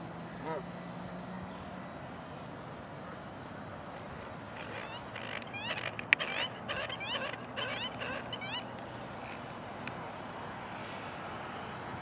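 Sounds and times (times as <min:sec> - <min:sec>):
geese honking: 0:04.6 - 0:08.7.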